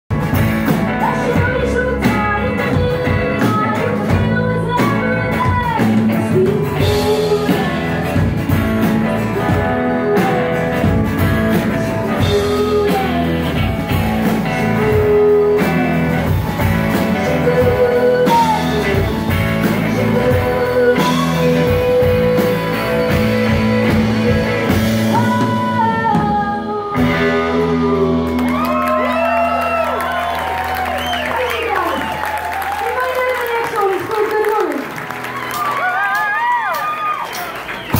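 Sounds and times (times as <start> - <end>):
drum kit: 0.1 - 37.9
woman singing: 0.9 - 29.3.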